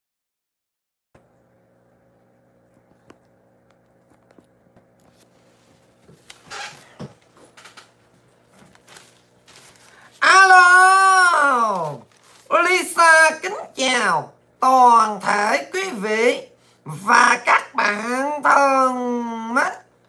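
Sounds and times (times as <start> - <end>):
faint steady hum: 1.2 - 20.0.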